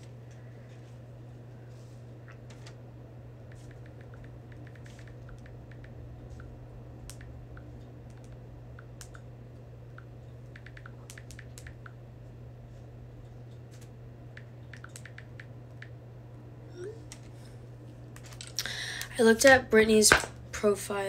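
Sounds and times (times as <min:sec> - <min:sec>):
steady low hum: 0:00.0 - 0:21.0
typing taps on touchscreen: 0:10.5 - 0:12.0, 0:14.4 - 0:15.5.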